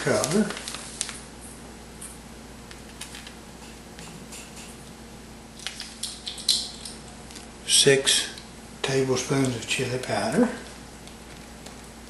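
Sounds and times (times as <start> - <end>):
plastic bag rustling: 0.0 - 1.5.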